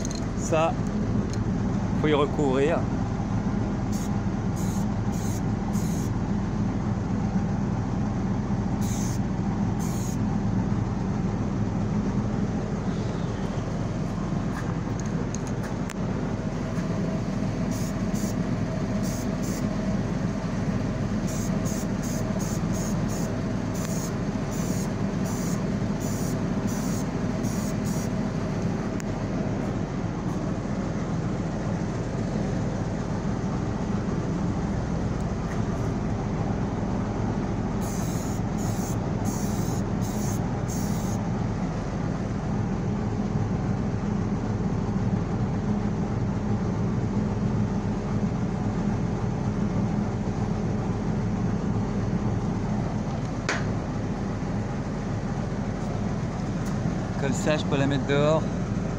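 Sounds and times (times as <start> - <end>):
machine drone: 0.0 - 58.9
aerosol spray can hissing: 8.8 - 9.2, 19.0 - 19.6, 21.3 - 28.1, 37.8 - 41.2.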